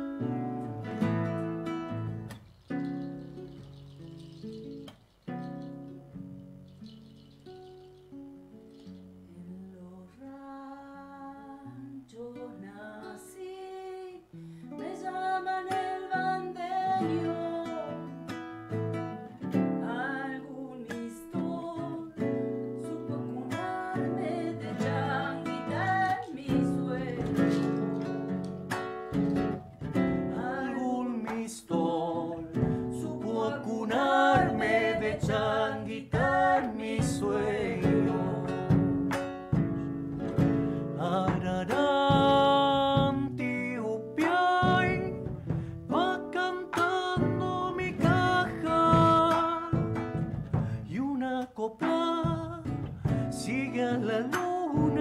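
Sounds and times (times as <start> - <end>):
acoustic guitar picking: 0.0 - 9.7, 14.3 - 55.0
woman singing: 9.3 - 18.3, 19.6 - 27.9, 30.2 - 39.0, 41.0 - 50.0, 50.8 - 55.0.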